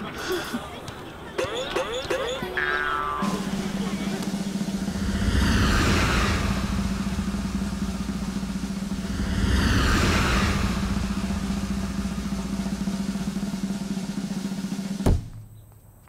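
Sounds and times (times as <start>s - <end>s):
fast drum roll: 1.4s - 15.5s
held low note: 3.0s - 15.0s
whoosh sweeps: 3.2s - 15.0s.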